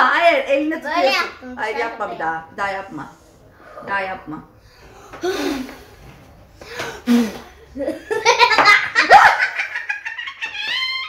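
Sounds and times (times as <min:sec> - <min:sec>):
woman and girl laughing: 0:07.8 - 0:11.0.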